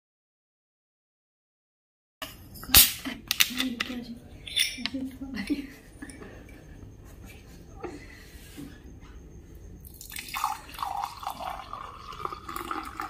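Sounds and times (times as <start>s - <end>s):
cola pouring into a glass: 9.8s - 13.0s.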